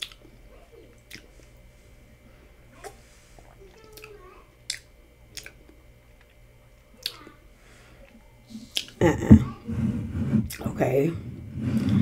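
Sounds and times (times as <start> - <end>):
lip smacks and mouth clicks: 0.0 - 0.3, 1.0 - 1.3, 4.7 - 6.4, 8.7 - 9.0.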